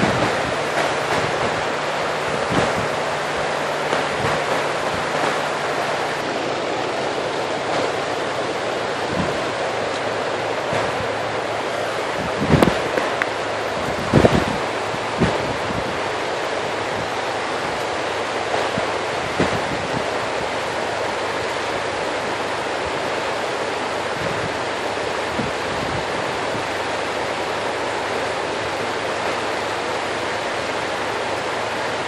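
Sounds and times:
wind on microphone: 0.0s - 6.3s, 7.6s - 17.9s, 18.5s - 20.7s, 24.0s - 26.8s
water lapping at shore: 0.0s - 32.0s.

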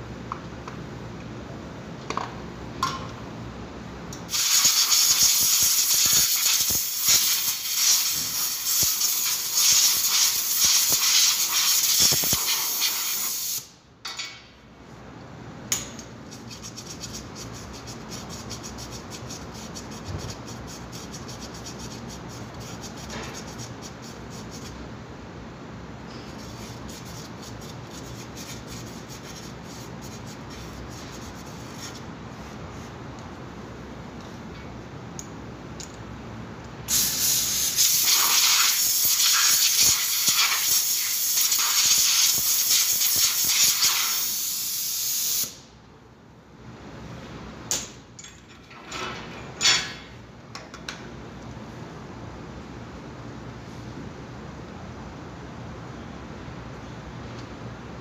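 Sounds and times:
pressurised spray hissing: 36.9s - 45.5s.

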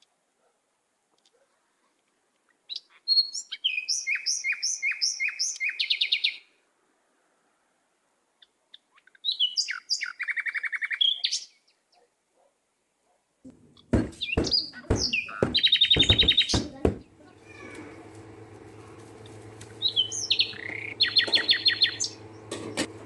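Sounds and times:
songbird singing: 2.4s - 6.6s, 8.3s - 12.0s, 13.5s - 23.0s.

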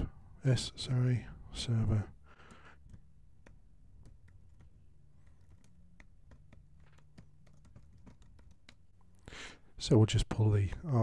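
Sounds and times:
low steady hum: 0.0s - 11.0s
computer keyboard keystrokes: 2.3s - 9.1s.

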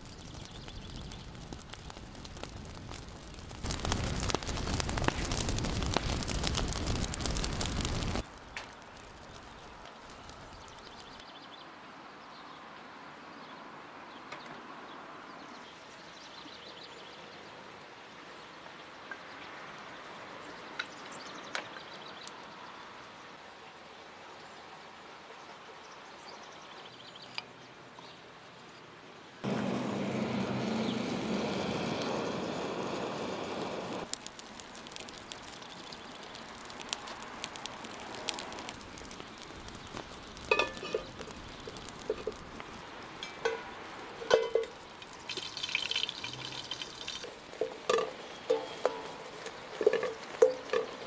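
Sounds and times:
fire catching with rushing noise: 0.0s - 11.2s, 29.4s - 45.9s
wood fire crackling and popping: 0.0s - 11.2s, 29.4s - 51.0s
steel pot knocking on metal stand: 43.2s - 44.8s
flour poured into pot: 45.1s - 47.3s.

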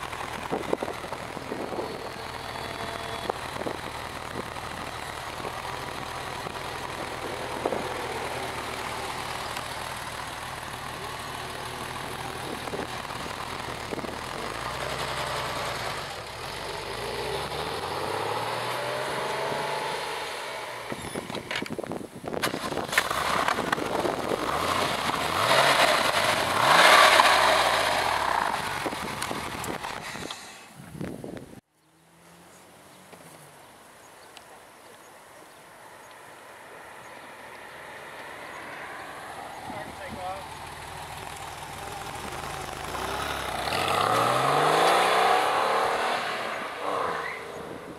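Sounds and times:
car engine accelerating: 0.0s - 21.6s, 22.5s - 30.4s, 36.9s - 47.9s
car accelerating past: 41.1s - 47.9s.

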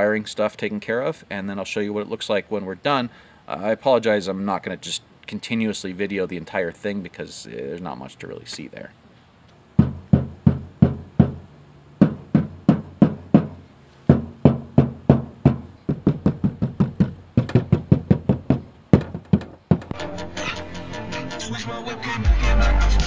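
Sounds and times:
hand knocking on metal car door: 9.8s - 11.4s, 12.0s - 19.9s
music: 19.9s - 23.0s.

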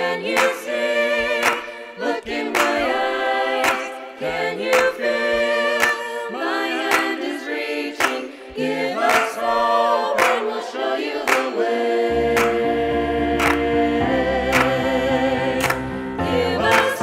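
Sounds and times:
mixed choir singing a cappella: 0.0s - 17.0s
hand clapping: 0.2s - 6.1s, 6.8s - 7.3s, 8.0s - 11.7s, 12.4s - 12.8s, 13.4s - 13.7s, 14.5s - 14.8s, 15.6s - 15.8s, 16.6s - 17.0s.

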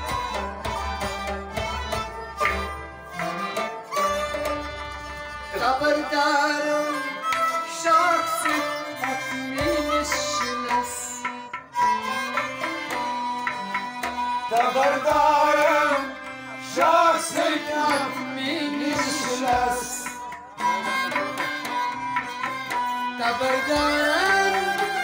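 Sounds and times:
harmonium chords: 0.0s - 25.0s
man singing: 5.5s - 11.3s, 14.4s - 21.3s, 23.1s - 25.0s.

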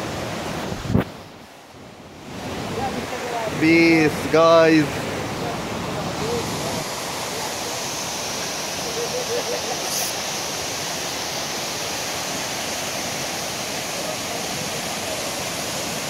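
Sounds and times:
stream white water rushing: 0.0s - 16.0s
short high hiss: 8.9s - 10.4s.

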